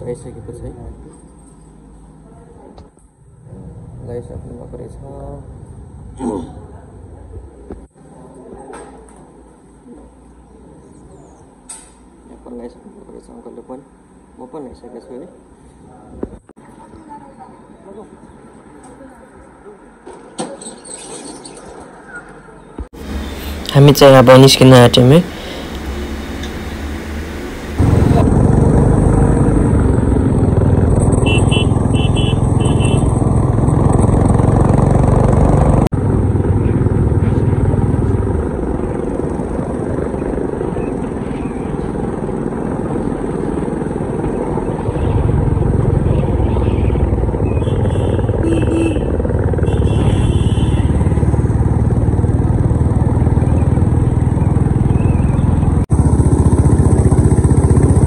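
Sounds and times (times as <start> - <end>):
motorcycle engine running: 23.0 - 58.0.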